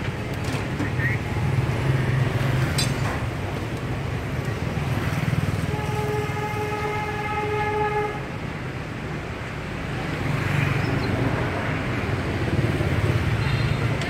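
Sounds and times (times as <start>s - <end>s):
street traffic rumble: 0.0s - 14.0s
vehicle horn: 5.7s - 8.3s.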